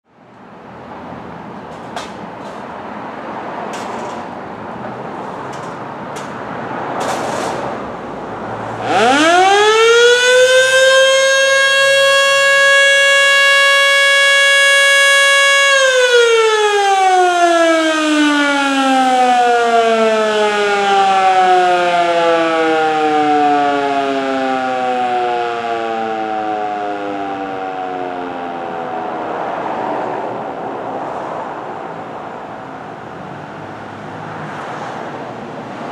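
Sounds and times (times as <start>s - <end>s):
electromechanical siren: 8.8s - 29.3s.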